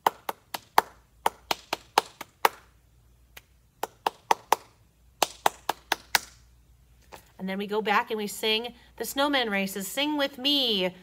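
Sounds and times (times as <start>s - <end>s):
sharp rhythmic taps: 0.0s - 2.7s, 3.4s - 6.4s.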